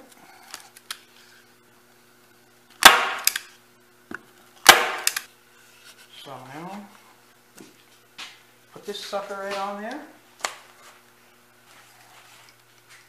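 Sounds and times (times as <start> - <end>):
brad pusher sharp snaps: 2.8 - 3.5, 4.7 - 5.3.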